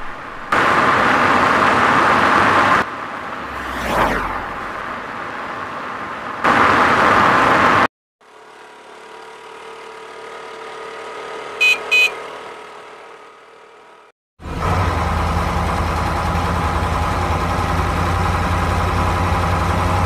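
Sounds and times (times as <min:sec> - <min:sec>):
loud engine rush: 0:00.0 - 0:20.0
scooter engine running: 0:08.2 - 0:20.0
quick horn beeps: 0:11.6 - 0:12.5.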